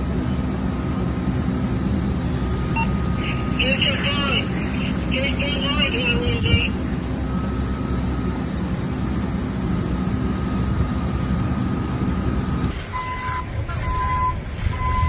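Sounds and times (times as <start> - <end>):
vehicle engine rumbling: 0.0 - 15.0
reversing beeper: 2.3 - 8.6, 10.0 - 15.0.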